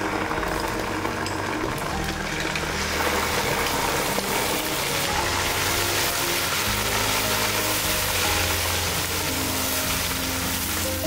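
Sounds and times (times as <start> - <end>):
background music: 0.0 - 11.0
food hissing in pot: 2.7 - 11.0.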